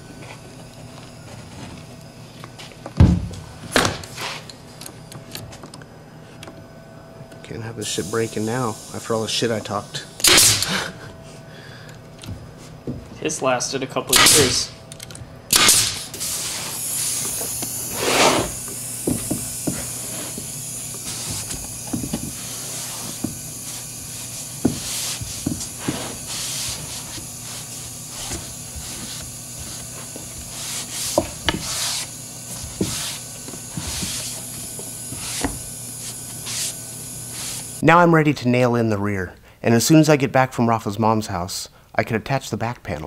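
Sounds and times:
steady hiss: 0:07.6 - 0:11.1, 0:13.4 - 0:14.8, 0:15.5 - 0:37.9
nail gun firing: 0:10.2 - 0:10.8, 0:14.1 - 0:14.7, 0:15.5 - 0:16.3
damp rag rubbing wood: 0:16.2 - 0:37.8.

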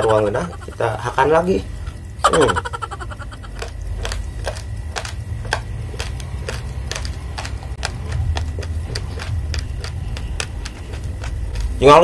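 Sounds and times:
rice grains crunching while chewing: 0:03.5 - 0:12.0.

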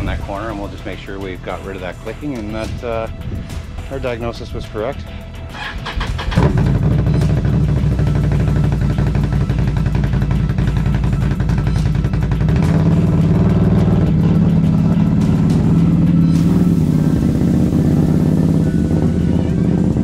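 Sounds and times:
atv engine running: 0:05.3 - 0:20.0.

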